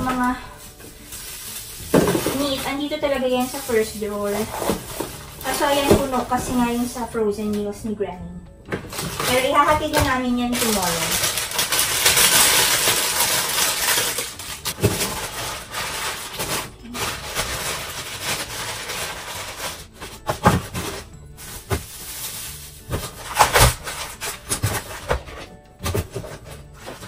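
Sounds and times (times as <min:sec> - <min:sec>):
frozen packets knocking and clattering: 0:00.0 - 0:07.1, 0:08.6 - 0:27.0
plastic bags crinkling: 0:00.0 - 0:07.1, 0:08.7 - 0:27.0
background music: 0:00.0 - 0:27.0.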